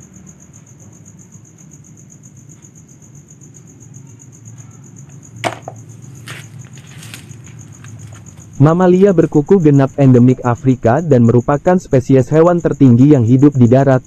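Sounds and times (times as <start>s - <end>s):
insects chirping: 0.0s - 14.0s.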